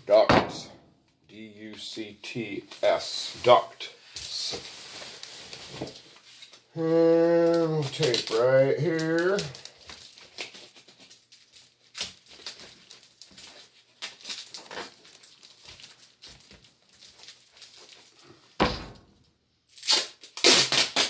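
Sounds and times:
duct tape ripping off roll: 19.7 - 21.0.

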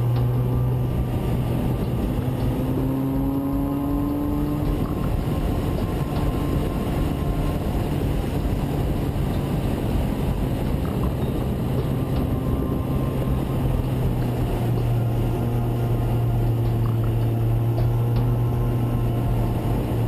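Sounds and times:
motorcycle engine cruising: 0.0 - 20.0
wind buffeting microphone: 0.0 - 20.0.

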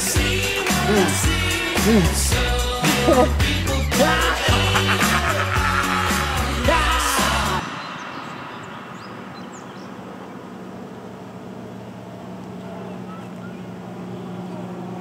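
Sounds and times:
bird chirps: 7.6 - 10.6, 12.6 - 14.6.

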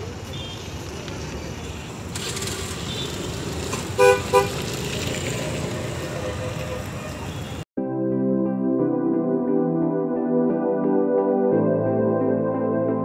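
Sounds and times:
street traffic noise: 0.0 - 7.7
vehicle horn toots: 4.0 - 4.6, 6.1 - 7.6.

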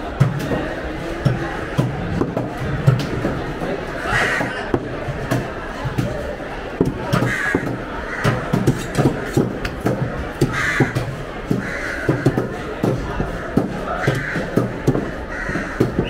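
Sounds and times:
crows cawing: 4.0 - 4.7, 7.1 - 9.3, 10.4 - 12.5, 13.9 - 16.0
knives chopping on wooden blocks: 6.8 - 16.0.

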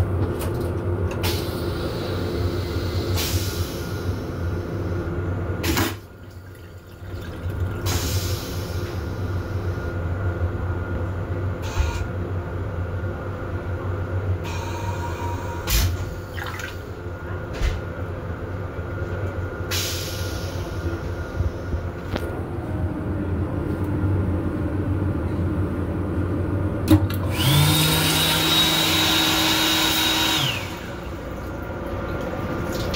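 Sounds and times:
water splashing into sink: 6.2 - 8.0, 16.3 - 16.9, 31.1 - 32.9
train rumble: 17.0 - 27.0.

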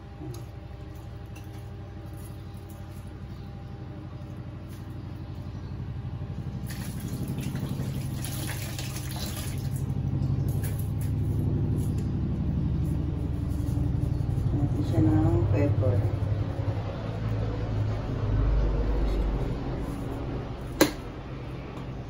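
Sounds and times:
low hum: 0.0 - 22.0
tap water running: 6.6 - 9.9.

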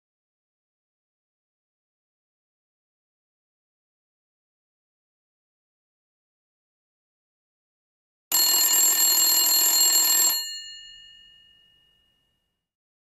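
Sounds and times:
electric alarm bell ringing: 8.3 - 12.4.

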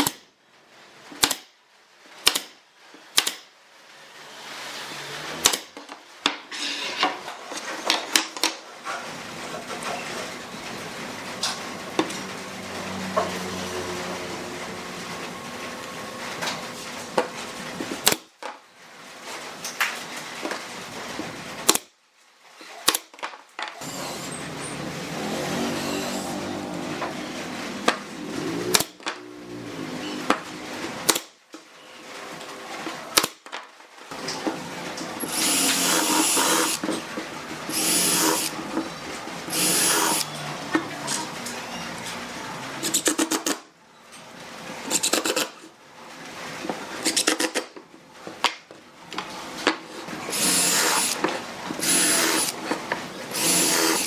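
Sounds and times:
nail gun firing into wood: 1.2 - 1.5, 2.2 - 3.5, 5.4 - 5.7, 22.8 - 23.3, 31.1 - 31.3
cordless drill whining: 35.2 - 36.8, 37.7 - 38.6, 39.5 - 40.3, 50.3 - 51.2, 51.8 - 52.6, 53.3 - 54.0.

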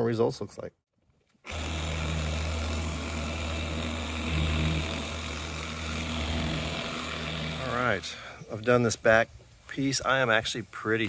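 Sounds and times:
electric orbital polisher running: 1.5 - 8.2.

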